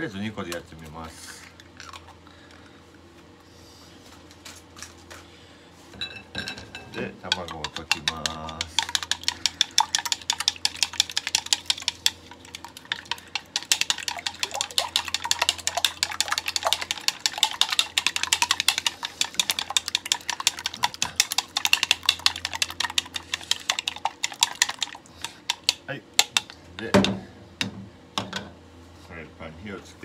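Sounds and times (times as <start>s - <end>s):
chopsticks clicking against bowl: 7.2s - 26.6s.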